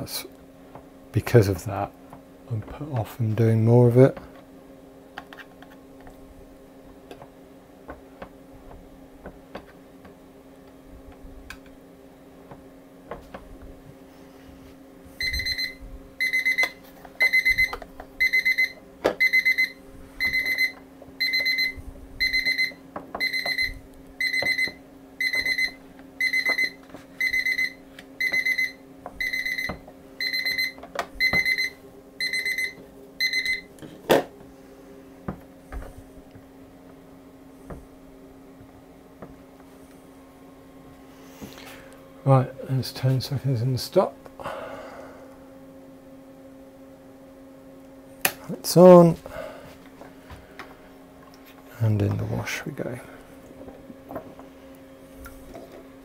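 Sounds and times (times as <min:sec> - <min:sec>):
timer alarm short high beeps: 0:15.2 - 0:33.7.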